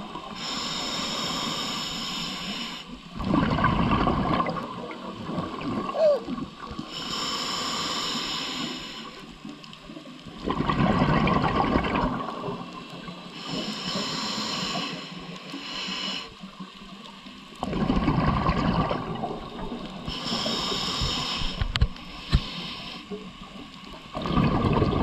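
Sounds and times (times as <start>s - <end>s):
gurgling exhaled bubbles: 3.1s - 6.9s, 10.3s - 14.1s, 17.6s - 21.9s, 24.1s - 25.0s.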